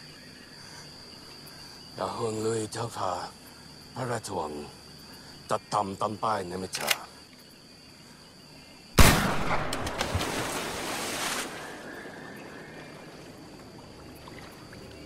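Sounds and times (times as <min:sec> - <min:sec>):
loud gunshot: 0:09.0 - 0:10.4.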